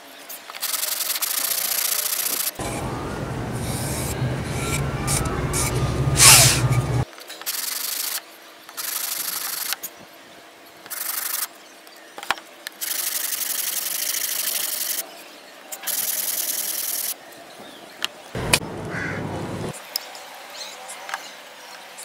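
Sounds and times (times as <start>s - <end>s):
hand sanding wood: 2.6s - 7.0s.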